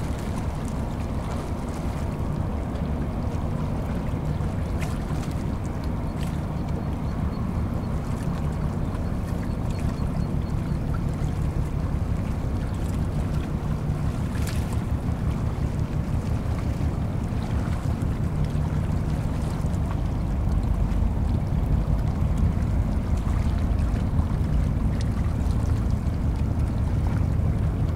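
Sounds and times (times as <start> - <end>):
diesel engines droning: 14.0 - 27.9.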